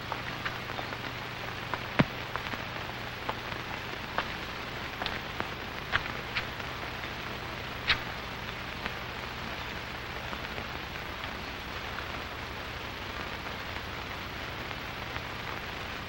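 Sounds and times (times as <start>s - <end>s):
low hum: 0.0s - 15.6s
steady hiss: 0.0s - 16.0s
film surface clicks and pops: 4.1s - 6.6s, 7.8s - 9.0s.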